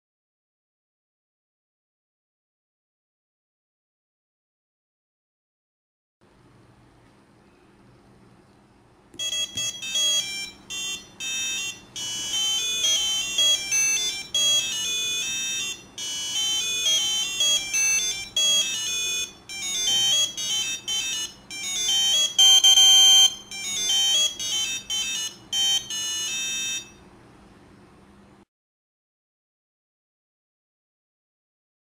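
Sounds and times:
buzzer playing electronic beeps: 9.2s - 27.0s.

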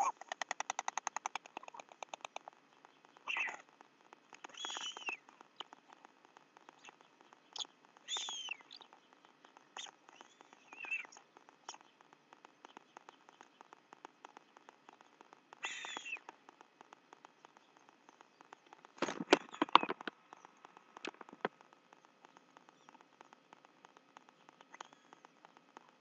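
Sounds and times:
faint patter of tiny ticks: 0.0s - 26.0s
stork knocking on nest: 19.0s - 20.3s.

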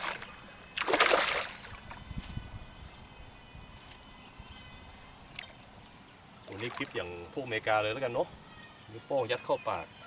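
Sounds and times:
fish thrashing in water: 0.0s - 1.9s
loud splash: 0.8s - 1.8s.

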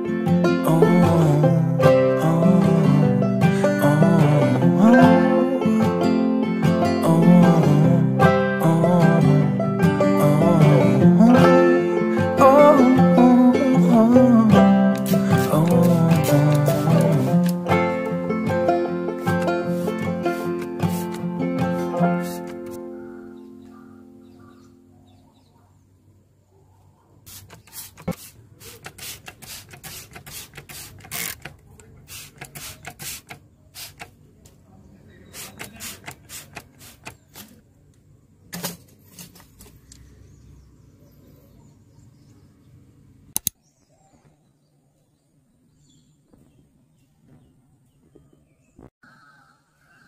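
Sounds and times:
spray bottle squirting water: 14.9s - 17.8s, 19.1s - 22.8s, 27.3s - 34.2s, 35.3s - 37.6s
sharp double click: 43.3s - 43.6s.

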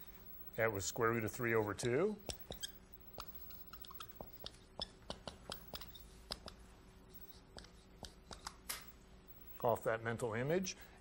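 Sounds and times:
marker writing on whiteboard: 0.9s - 8.7s.

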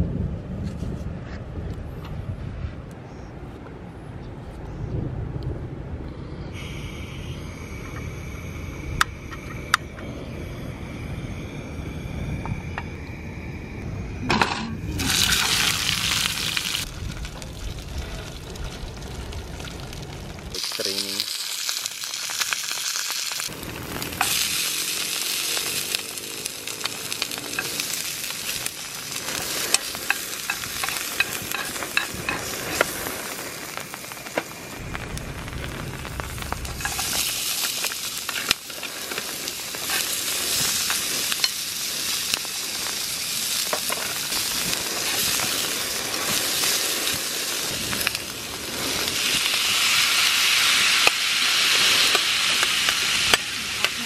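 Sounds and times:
oil sizzling in a frying pan: 14.8s - 54.0s.

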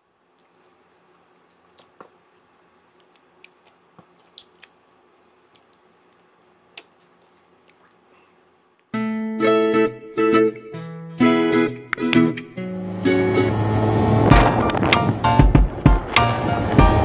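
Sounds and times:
faint steady hum: 0.0s - 17.0s
lip and tongue smacks: 0.3s - 5.9s, 6.7s - 8.1s.

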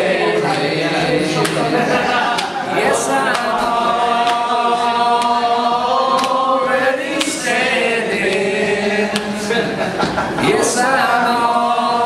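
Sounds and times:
group singing without instruments: 0.0s - 12.0s.

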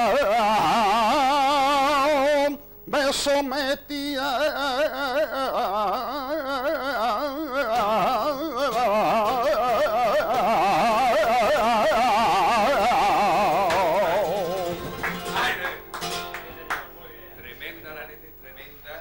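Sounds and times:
guitar accompaniment: 7.7s - 17.6s.

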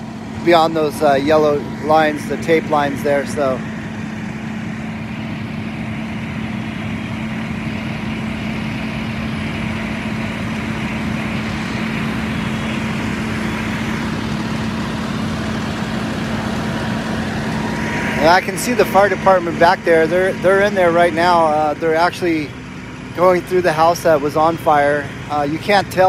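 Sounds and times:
diesel engine humming: 0.0s - 26.0s.

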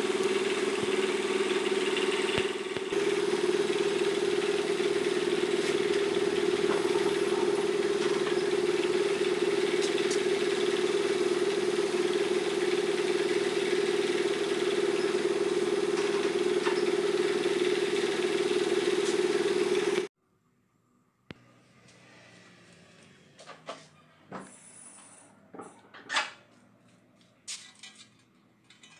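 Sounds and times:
motor droning: 0.0s - 20.1s, 21.3s - 25.6s.

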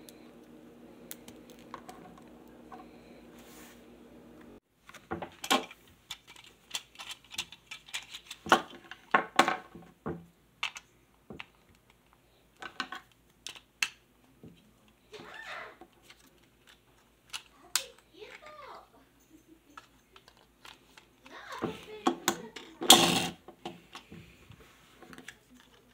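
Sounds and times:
plastic toy pieces clicking: 5.4s - 9.2s, 10.6s - 12.0s, 12.6s - 14.0s, 16.0s - 18.5s, 19.8s - 21.3s.

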